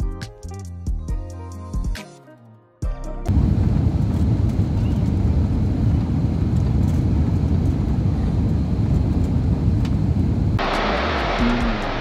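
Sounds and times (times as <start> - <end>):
aircraft engines rumbling: 3.3 - 12.0.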